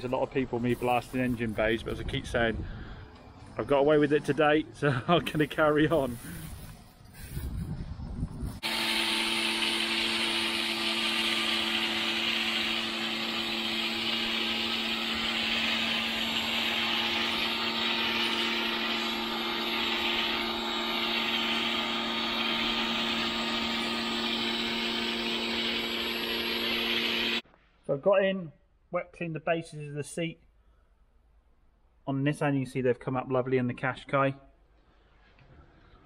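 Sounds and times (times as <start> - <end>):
loud hiss: 0.6 - 1.9, 5.3 - 7.6, 8.5 - 27.4
cleaning machine motor running: 8.6 - 27.4.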